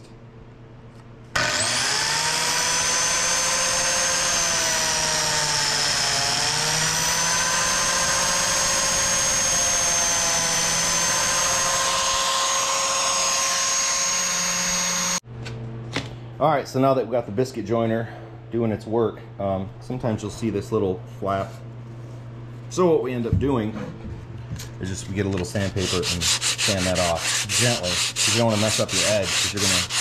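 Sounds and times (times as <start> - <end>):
biscuit joiner motor whining: 1.4 - 15.2.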